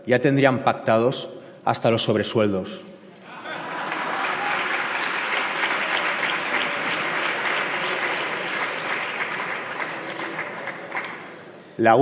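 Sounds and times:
crowd applauding: 3.2 - 11.6.

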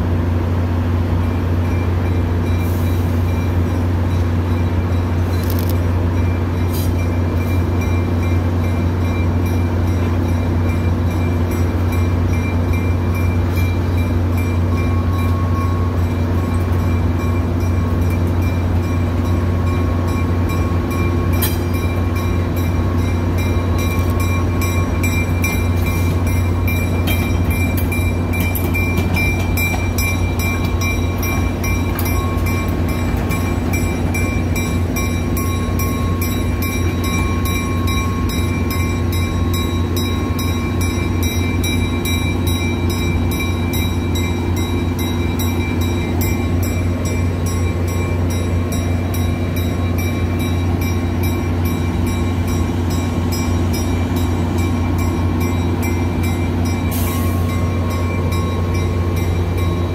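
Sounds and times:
diesel locomotive engine drone: 0.0 - 59.9.

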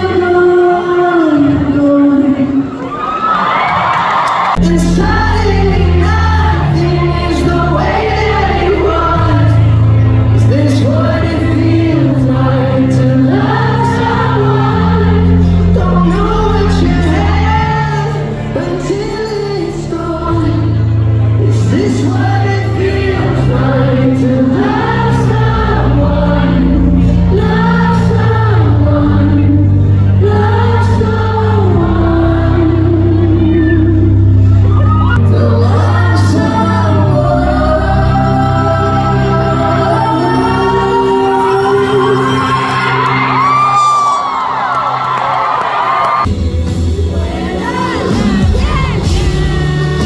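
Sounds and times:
crowd singing along: 0.0 - 2.8, 3.7 - 44.6, 45.3 - 50.0
live band with loud bass: 4.6 - 50.0.

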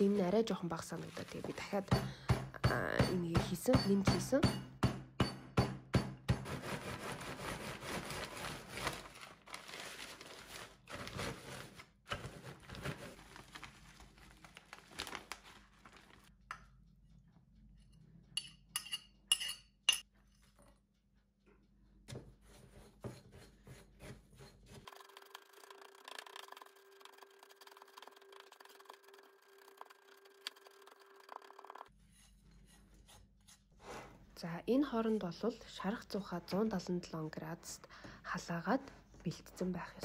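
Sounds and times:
plastic bag crinkling: 8.2 - 16.3.

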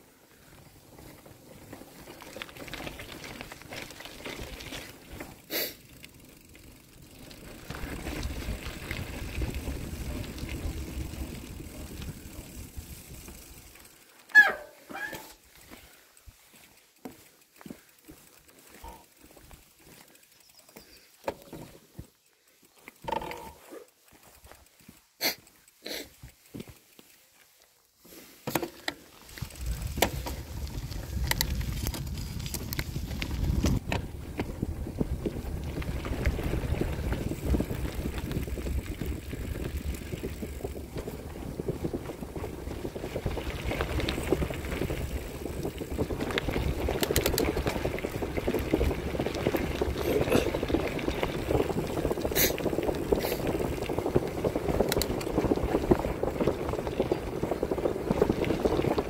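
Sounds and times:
bicycle tyres rumbling on dirt: 0.0 - 59.0
bike clicks and rattles: 0.4 - 59.0
wind buffeting microphone: 29.4 - 59.0.

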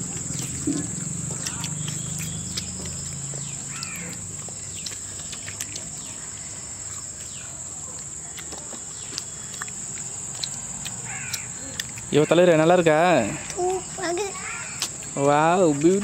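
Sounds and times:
bird calls and chirps: 0.3 - 7.6.

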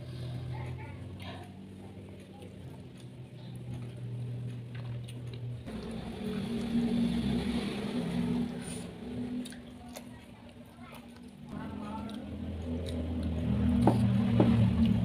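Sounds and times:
vehicle engine rumble: 0.0 - 9.8, 11.3 - 15.0
faint eating clicks: 0.5 - 6.7, 9.4 - 13.6.

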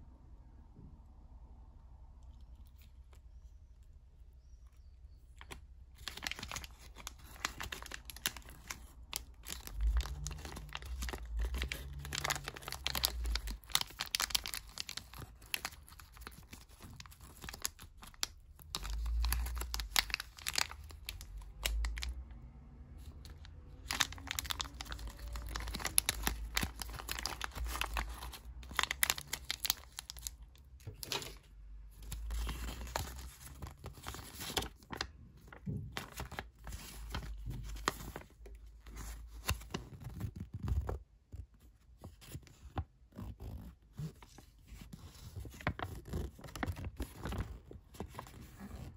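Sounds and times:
plastic packet crinkling and tearing: 5.3 - 22.3, 23.0 - 41.0, 43.2 - 48.9
paper leaflet rustling: 5.4 - 22.1, 23.2 - 41.0, 44.1 - 48.9.

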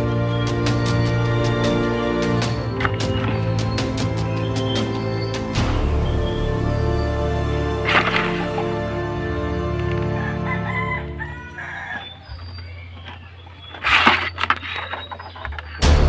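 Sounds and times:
background music: 0.0 - 12.5, 15.3 - 16.0
rooster crowing: 9.4 - 12.8.

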